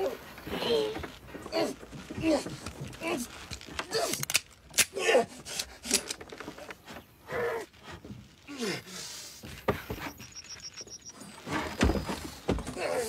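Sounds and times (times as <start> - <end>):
knocks and scraping on wood: 0.0 - 4.1, 9.3 - 13.0
man groaning and gasping: 8.5 - 9.1.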